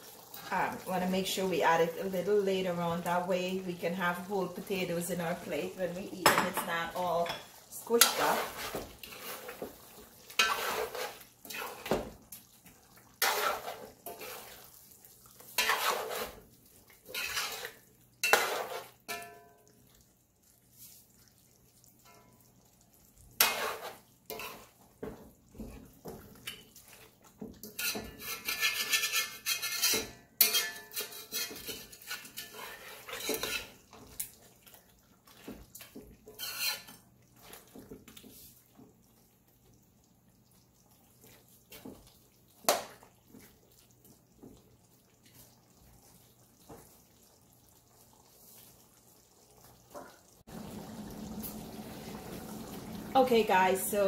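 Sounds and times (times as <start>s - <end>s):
metal spoon scraping metal pot: 7.3s - 9.6s, 10.4s - 11.9s, 13.2s - 14.5s, 15.6s - 16.4s, 17.1s - 19.3s, 23.4s - 24.7s, 27.6s - 33.8s, 36.3s - 37.0s.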